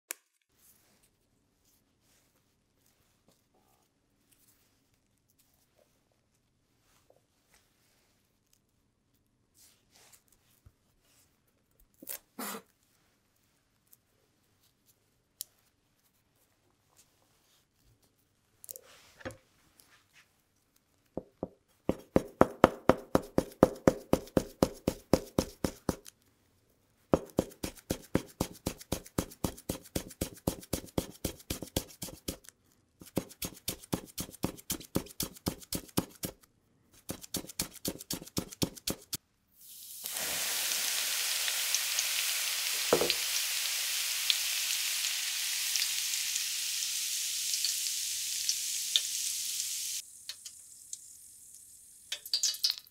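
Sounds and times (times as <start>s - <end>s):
knife shredding on cutting board: 37.0s - 39.2s
greens sizzling in oil: 39.6s - 52.9s.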